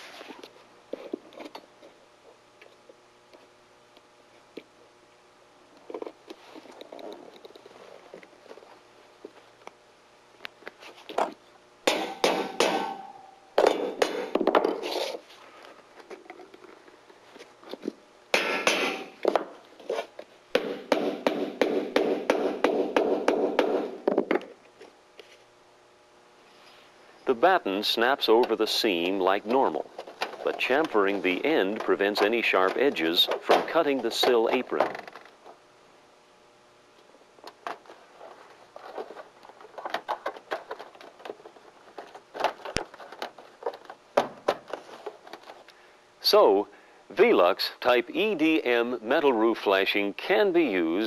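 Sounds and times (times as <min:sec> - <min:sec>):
sheet metal clicks and crinkles: 0:29.5 - 0:35.6, 0:37.4 - 0:45.7.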